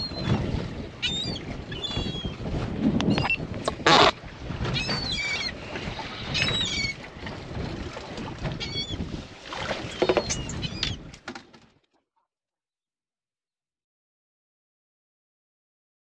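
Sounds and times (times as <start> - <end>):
wind: 0.0 - 12.0
water around boat: 0.0 - 12.2
gulls calling: 1.0 - 2.4, 3.1 - 7.1, 8.5 - 9.0, 9.8 - 11.1.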